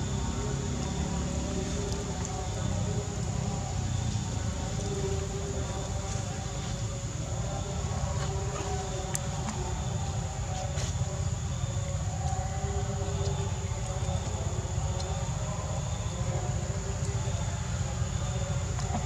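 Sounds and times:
outdoor background rumble: 0:00.0 - 0:19.0
faint ticks: 0:13.1 - 0:15.2.

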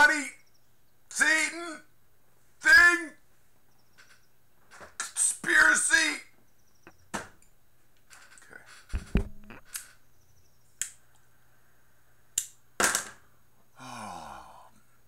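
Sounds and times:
sharp clicks: 0:06.8 - 0:10.0, 0:10.8 - 0:11.3, 0:12.4 - 0:12.6
low thumps and knocks on a desk: 0:08.9 - 0:09.6.

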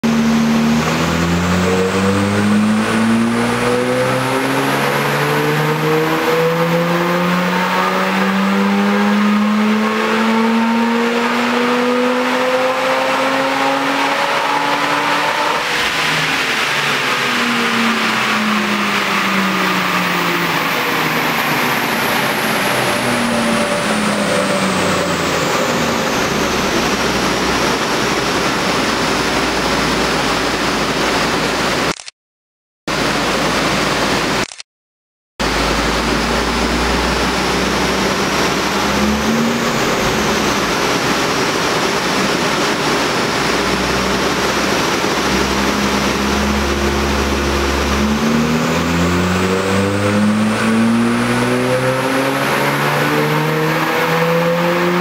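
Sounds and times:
rotary engine revving under load: 0:00.1 - 0:31.0, 0:35.4 - 0:55.0.

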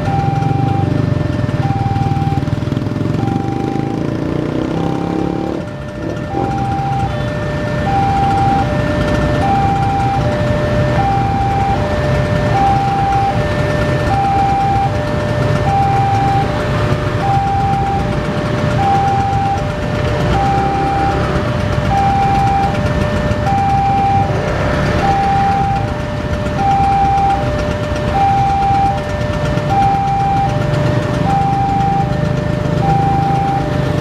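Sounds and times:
low engine rumble: 0:04.9 - 0:34.0.

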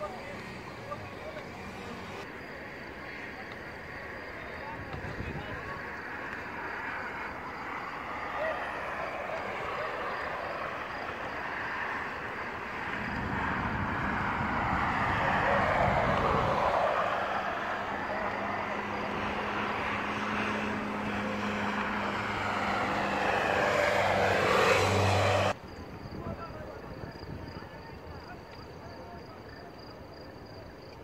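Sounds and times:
engine rushing drone: 0:00.0 - 0:02.3, 0:07.1 - 0:25.6.

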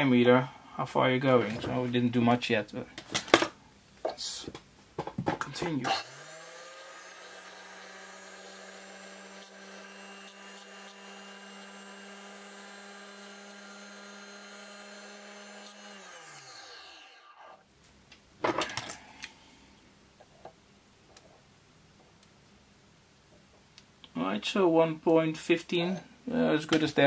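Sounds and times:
drill press motor running: 0:06.0 - 0:17.2.

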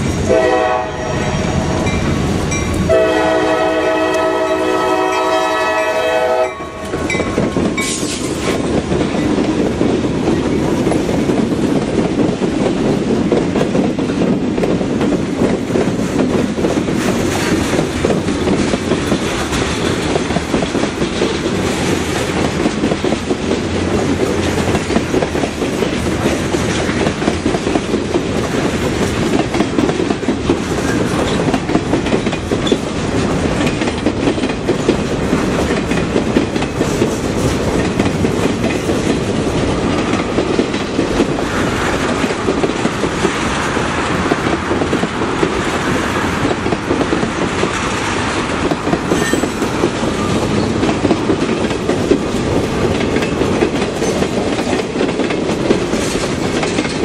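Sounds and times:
freight train rumble: 0:00.0 - 0:57.0.

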